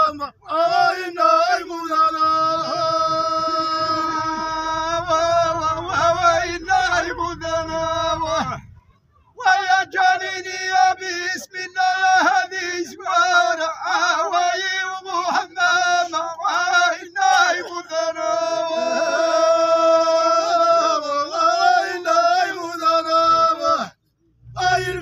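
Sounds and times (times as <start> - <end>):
men singing in unison: 0.0 - 8.8, 9.4 - 25.0.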